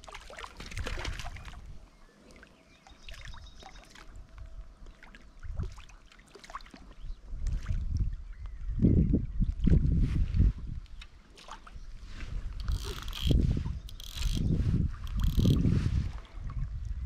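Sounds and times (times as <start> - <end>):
fish splashing and thrashing: 0.0 - 1.7, 12.4 - 16.6
small water splashes: 0.0 - 8.2, 11.2 - 11.9
wind rumble on microphone: 0.6 - 2.0, 5.4 - 5.8, 7.0 - 17.0.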